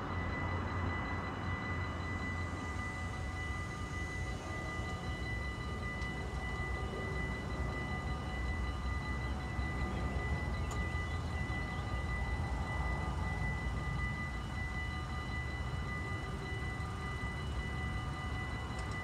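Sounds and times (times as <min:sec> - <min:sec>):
crossing warning bell ringing: 0:00.0 - 0:19.0.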